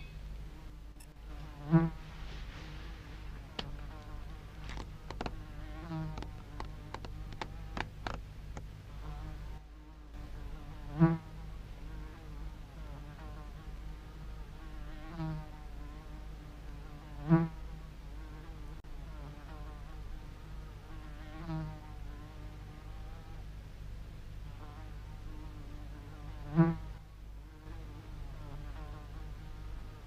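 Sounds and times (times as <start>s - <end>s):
fly buzzing: 0.0s - 23.4s, 24.6s - 30.0s
steady low hum: 0.0s - 30.0s.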